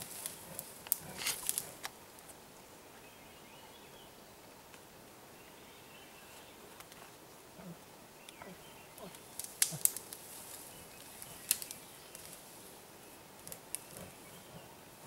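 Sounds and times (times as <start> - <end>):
bear moving through brush: 0.0 - 1.9, 9.1 - 12.8
twigs snapping: 0.0 - 1.9, 9.0 - 12.4, 13.4 - 14.1.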